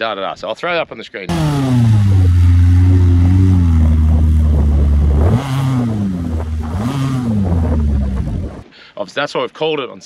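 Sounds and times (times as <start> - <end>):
van engine revving: 1.3 - 8.6.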